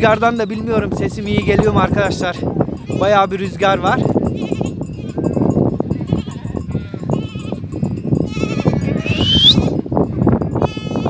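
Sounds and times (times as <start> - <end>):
wind buffeting microphone: 0.0 - 11.0
goats bleating: 2.8 - 3.3, 4.2 - 5.3, 5.9 - 9.9, 10.6 - 11.0
loud rising whistle: 9.1 - 9.6.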